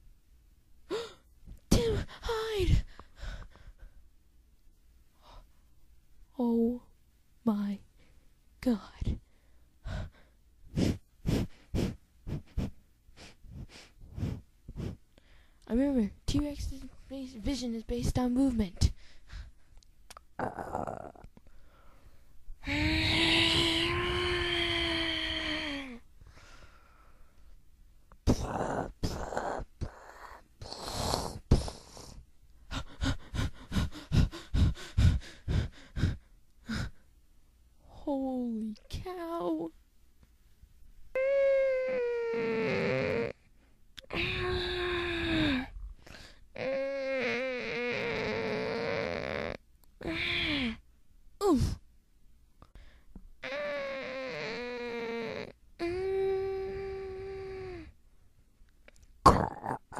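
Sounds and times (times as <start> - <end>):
breathy huffs: 9.3 - 15.6, 29.8 - 37.0, 44.1 - 46.6.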